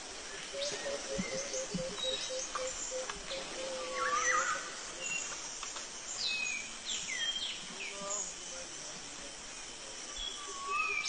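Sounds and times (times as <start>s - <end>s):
faint pulsing insect drone: 0.0s - 11.0s
bird warbling call: 0.5s - 4.7s
birds whistling and chirping: 0.5s - 5.3s.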